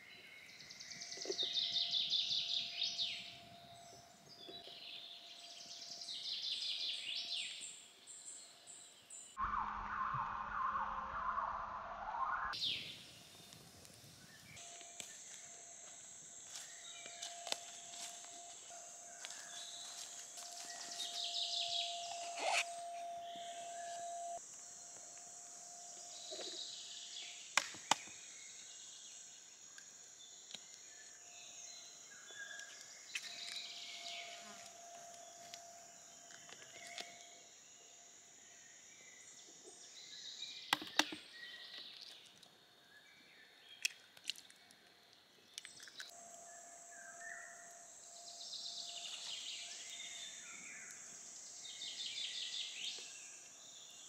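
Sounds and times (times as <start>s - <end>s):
birds chirping: 0.0s - 15.6s
steady high-pitched hiss: 0.0s - 41.9s, 46.0s - 54.0s.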